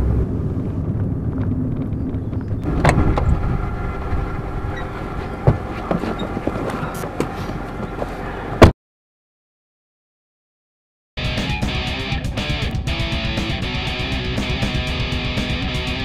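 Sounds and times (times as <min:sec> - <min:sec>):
loud thump: 0:02.6 - 0:03.6.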